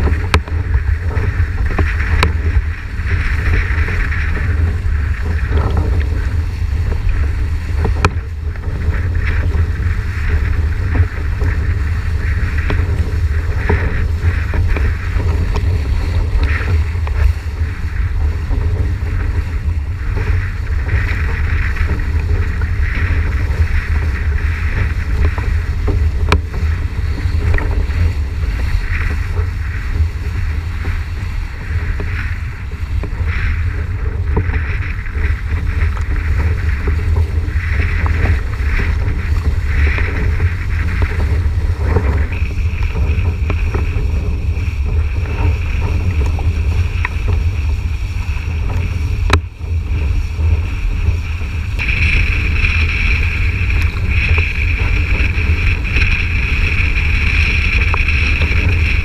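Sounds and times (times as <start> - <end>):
thin steady whine: 0.0 - 59.0
water rushing and spraying: 0.0 - 59.0
wind buffeting microphone: 0.0 - 59.0.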